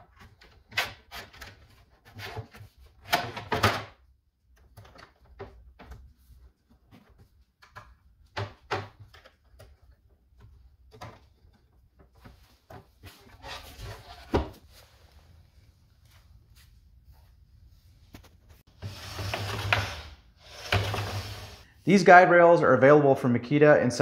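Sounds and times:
sliding scrape: 18.7 - 21.7.

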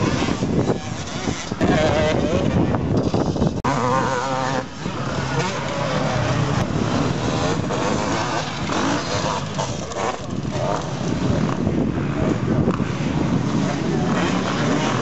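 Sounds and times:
dirt bike engines revving: 0.0 - 15.0.

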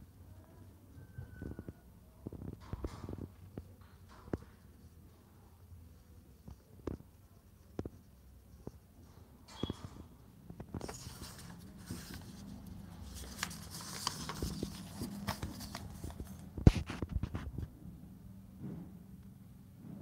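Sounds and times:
book pages rustling: 10.6 - 17.6.

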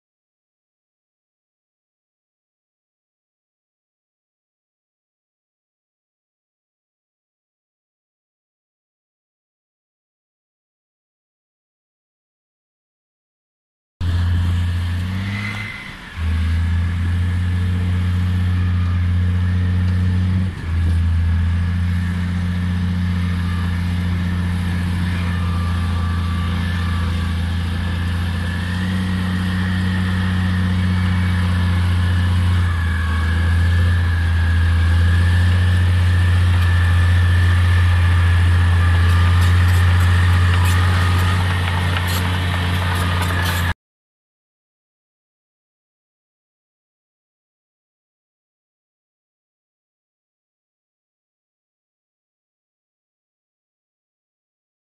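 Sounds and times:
bulldozer diesel engine working: 14.0 - 43.8.

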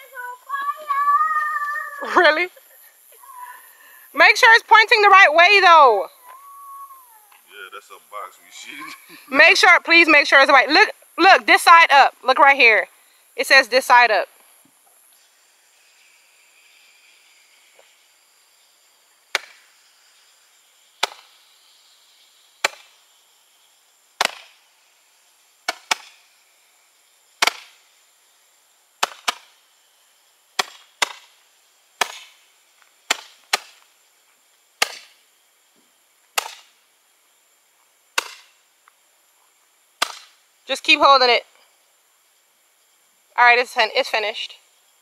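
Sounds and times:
firework cake popping: 19.2 - 19.8, 20.8 - 21.6, 22.4 - 23.2, 24.1 - 24.7, 25.6 - 26.4, 27.4 - 27.9, 29.0 - 29.6, 30.5 - 31.4, 32.0 - 33.9, 34.8 - 35.2, 38.1 - 38.6, 40.0 - 40.4.

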